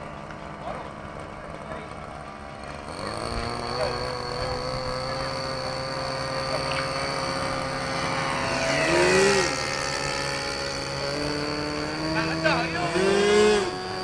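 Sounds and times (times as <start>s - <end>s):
model airplane engines buzzing: 0.0s - 14.0s.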